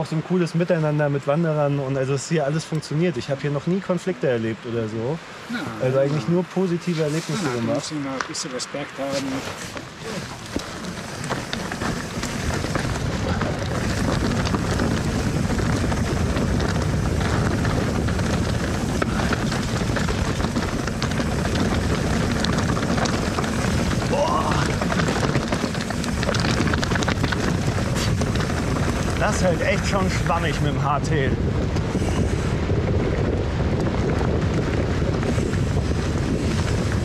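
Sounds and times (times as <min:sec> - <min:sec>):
bike tyres rolling over loose rock: 0:00.0 - 0:05.0, 0:05.8 - 0:37.0
wind buffeting microphone: 0:09.3 - 0:37.0
clicks and knocks from bike: 0:09.5 - 0:30.3.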